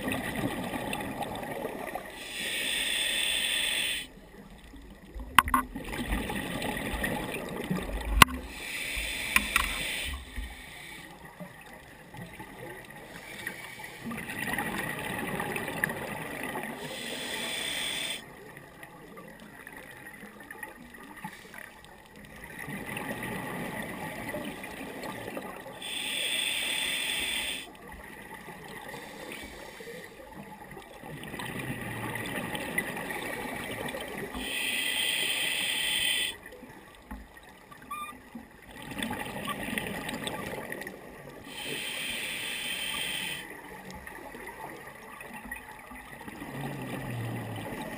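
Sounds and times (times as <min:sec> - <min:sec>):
regulator air hiss: 0:02.2 - 0:04.1, 0:08.4 - 0:11.2, 0:16.8 - 0:18.2, 0:25.8 - 0:27.7, 0:34.4 - 0:36.4, 0:41.5 - 0:43.4
gurgling exhale of bubbles: 0:46.3 - 0:47.9.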